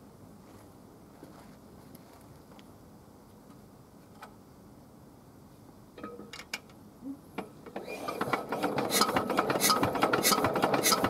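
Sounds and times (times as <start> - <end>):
stationary engine starting: 7.8 - 11.0.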